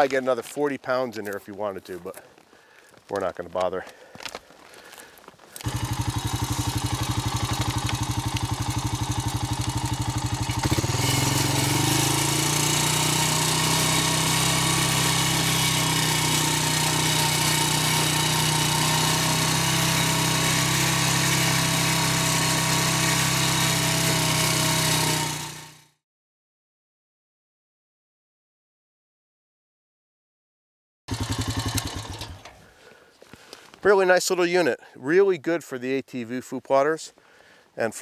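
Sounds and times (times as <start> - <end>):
quad engine running: 5.6 - 26.0, 31.1 - 32.6.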